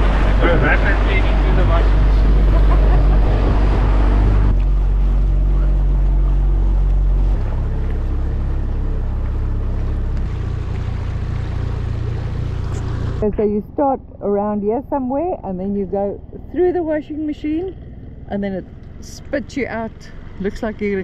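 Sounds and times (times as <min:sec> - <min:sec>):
water rushing: 0:00.0 - 0:13.3
outboard motor running: 0:00.0 - 0:21.0
wind: 0:00.0 - 0:21.0.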